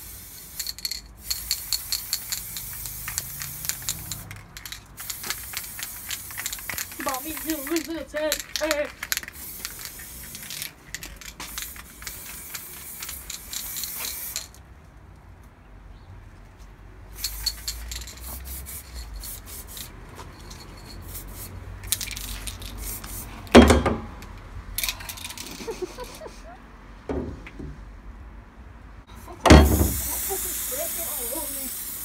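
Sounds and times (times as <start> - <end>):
spray paint can hissing: 0.0 - 14.6, 17.1 - 23.4, 29.2 - 32.0
loud thump: 23.6 - 24.2, 27.1 - 27.8, 29.5 - 30.0.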